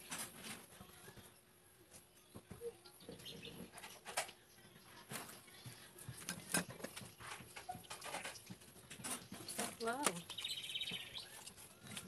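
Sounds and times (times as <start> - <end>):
faint bird chirps: 10.2 - 12.0.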